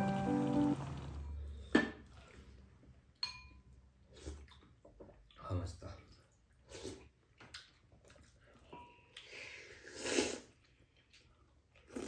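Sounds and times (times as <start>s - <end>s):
loud slurp: 9.8s - 10.5s.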